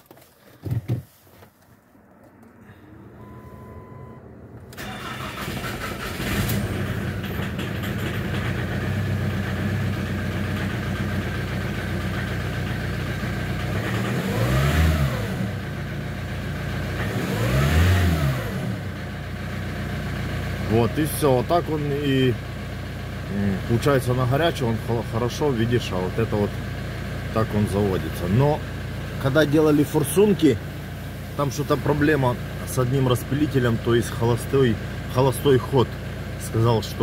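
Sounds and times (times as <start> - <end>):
diesel engine starting and idling: 2.2 - 37.0
engine revving: 2.4 - 10.0, 13.5 - 15.8, 16.8 - 18.9.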